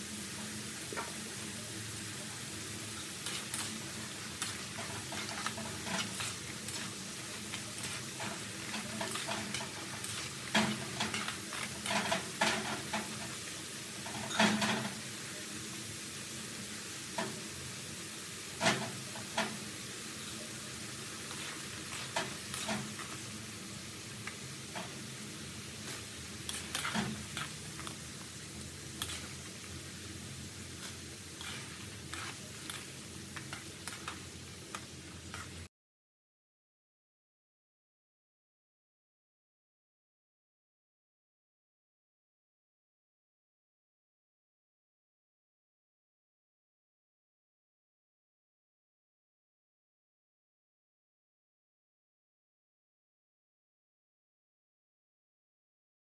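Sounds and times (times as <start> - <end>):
fries sizzling in hot oil: 0.0 - 35.7
metal utensils clinking on wok: 3.2 - 13.4, 14.0 - 15.0, 21.3 - 23.2, 26.4 - 28.0.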